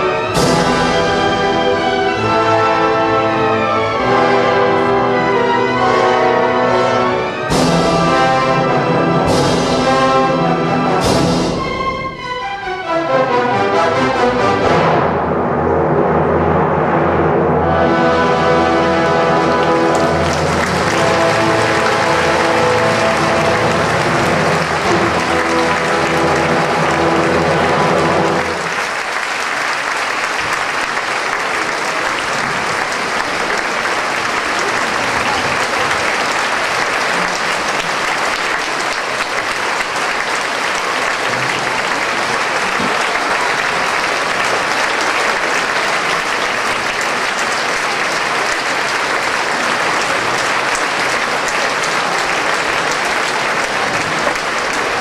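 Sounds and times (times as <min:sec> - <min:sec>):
audience applause: 0:00.0 - 0:14.8, 0:17.8 - 0:55.0
orchestra chord: 0:00.0 - 0:28.9.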